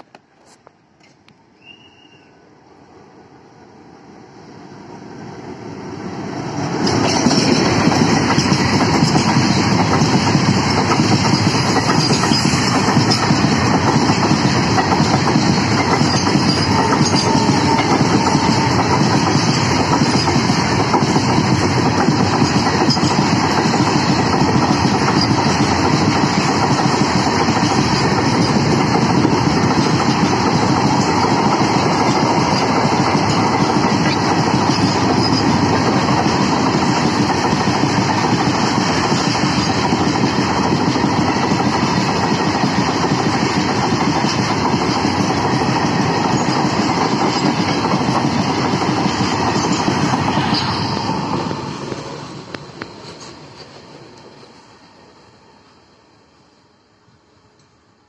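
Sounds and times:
diesel locomotive passing: 1.6s - 58.0s.

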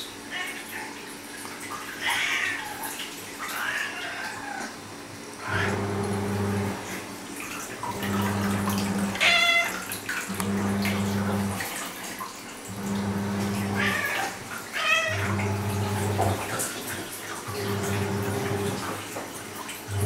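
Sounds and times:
cat meowing: 2.0s - 4.8s, 9.2s - 9.9s, 13.8s - 15.4s.

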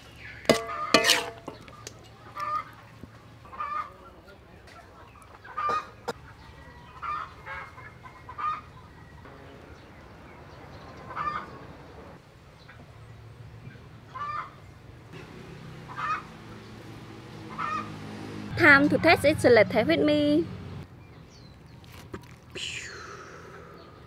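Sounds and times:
chickens clucking: 0.2s - 9.2s, 10.9s - 12.9s.

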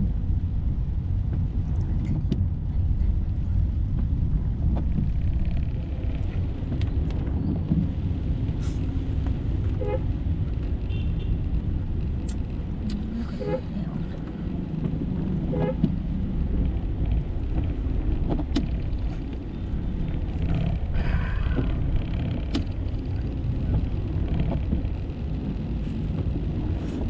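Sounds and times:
low car cabin rumble: 0.0s - 27.0s
windshield wipers sweeping: 12.4s - 27.0s.

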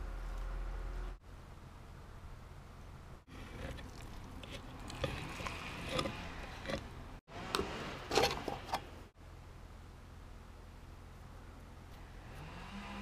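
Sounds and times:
stick stirring paint in can: 3.3s - 8.9s.

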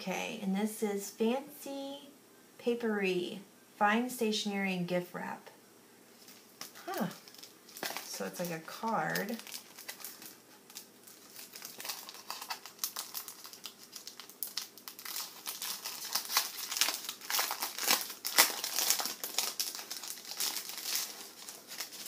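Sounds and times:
plastic wrapper crinkling: 6.1s - 22.0s.

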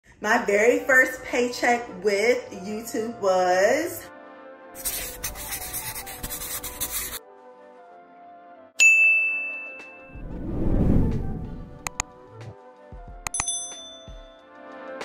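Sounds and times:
soft background music: 0.1s - 15.0s
scratchy rustling noise: 4.8s - 7.2s
bell ding: 8.8s - 10.2s, 13.3s - 14.5s
low swell: 10.1s - 12.0s.

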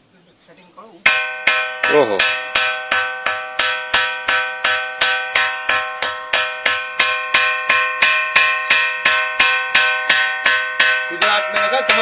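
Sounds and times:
ringing rock being struck: 1.1s - 12.0s.

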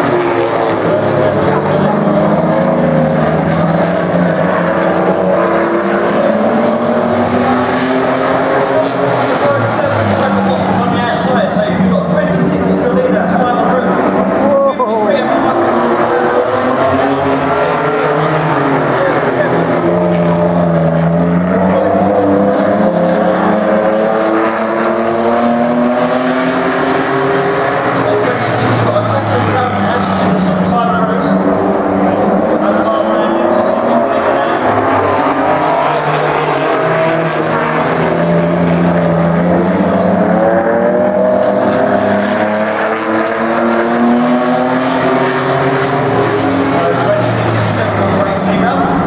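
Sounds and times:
race car engines: 0.0s - 49.0s.

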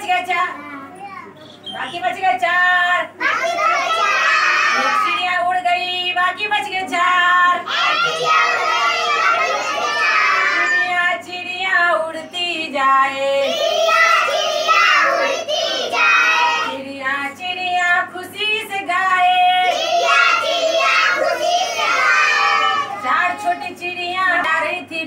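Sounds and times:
children singing together: 3.2s - 5.2s, 7.7s - 11.0s, 13.3s - 16.8s, 19.5s - 23.8s.

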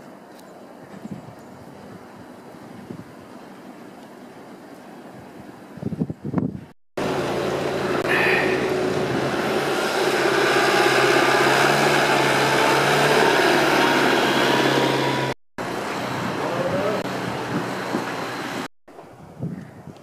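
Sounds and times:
road noise on slush: 0.0s - 5.8s, 7.0s - 19.3s
vehicle engine running: 7.0s - 18.7s.

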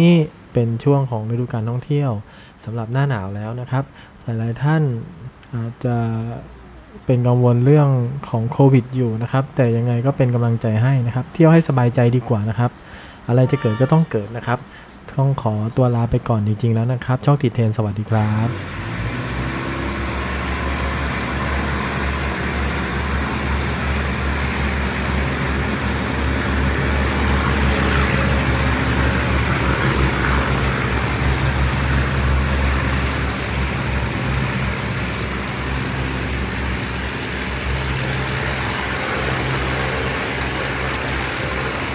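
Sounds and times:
diesel railcar engine drone: 18.1s - 41.9s
train running noise: 18.2s - 41.9s.

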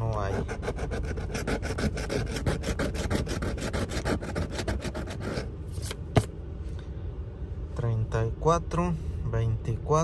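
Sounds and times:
coin scratching lottery ticket: 0.2s - 5.9s.

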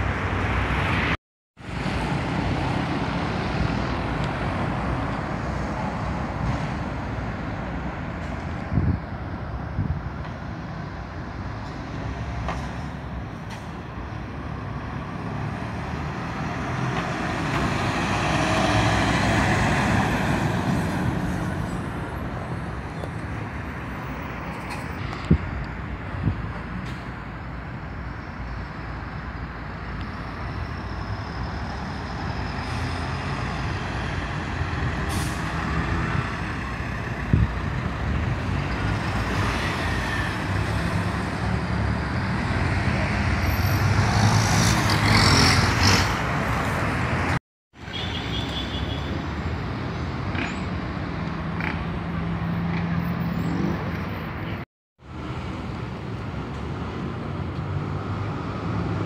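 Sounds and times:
street traffic: 0.0s - 59.0s
bus diesel engine passing: 10.5s - 47.4s.

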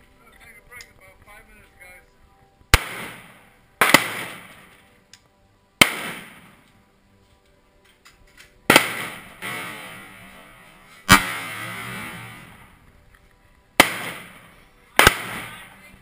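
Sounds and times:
rifle shots with ringing echo: 2.7s - 4.8s, 5.8s - 6.7s, 8.7s - 12.7s, 13.8s - 16.0s.

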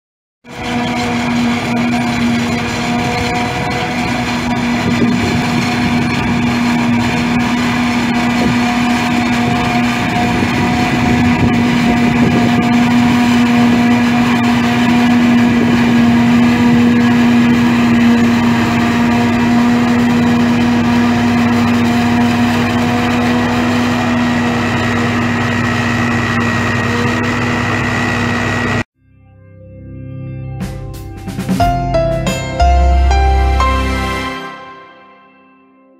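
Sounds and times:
forage harvester droning: 0.5s - 28.8s.

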